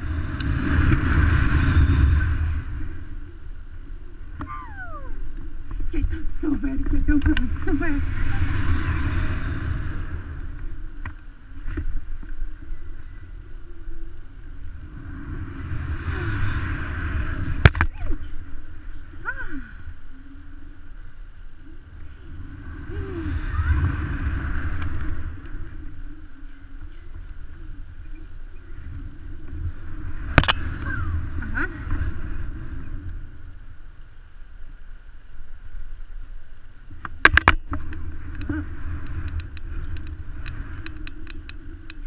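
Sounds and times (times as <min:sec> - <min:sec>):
wind rushing over microphone: 0:00.0 - 0:42.0.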